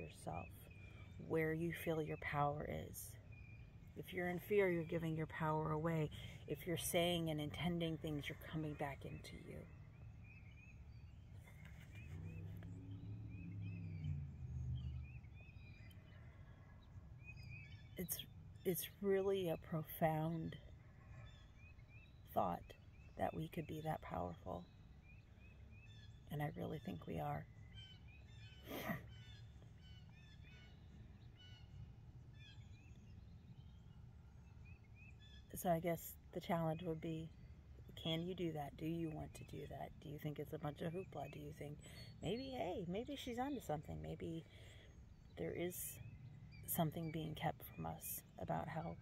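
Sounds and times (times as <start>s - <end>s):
low outdoor rumble: 0.0s - 49.0s
small birds chirping: 0.0s - 49.0s.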